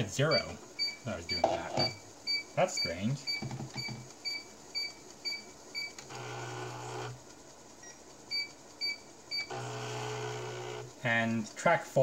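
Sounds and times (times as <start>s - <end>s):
floppy drive motor humming: 0.0s - 11.7s
short computer beeps: 0.3s - 6.0s.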